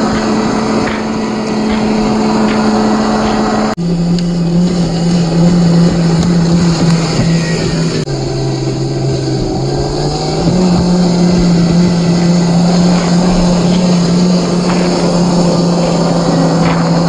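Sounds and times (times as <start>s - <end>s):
electric motor whine: 0.0s - 17.0s.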